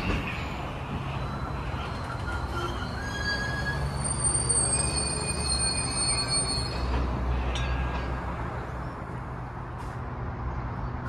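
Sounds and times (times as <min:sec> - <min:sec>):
train wheel squeal: 0:00.0 - 0:08.1
train wheels rumbling on rails: 0:00.0 - 0:11.0.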